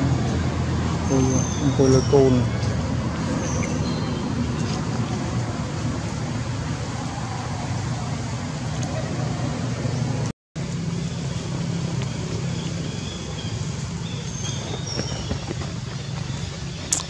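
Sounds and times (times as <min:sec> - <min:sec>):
low rumble of motor traffic: 0:00.0 - 0:17.0.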